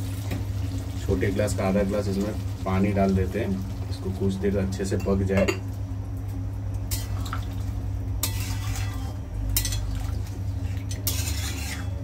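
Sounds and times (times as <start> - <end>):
steady low hum: 0.0 - 12.0
spoon scraping and clinking on pan: 8.2 - 9.9, 10.9 - 12.0.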